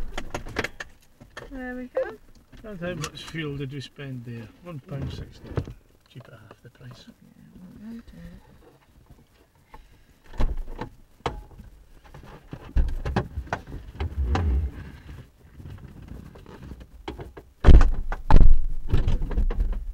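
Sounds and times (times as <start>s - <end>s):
clicks and knocks inside car: 10.3s - 14.7s.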